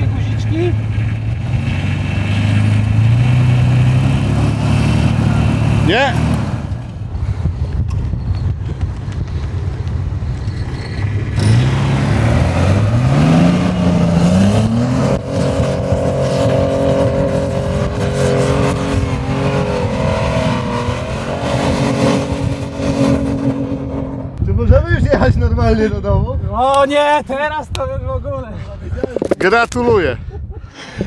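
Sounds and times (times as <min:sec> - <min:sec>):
off-road vehicle engine revving: 0:00.0 - 0:07.0, 0:10.8 - 0:24.5.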